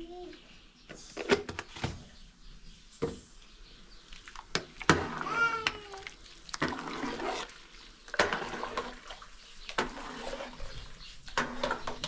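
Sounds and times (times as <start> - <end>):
water sloshing in a metal pot: 4.1 - 12.0
ladle swishing through water: 4.2 - 11.9.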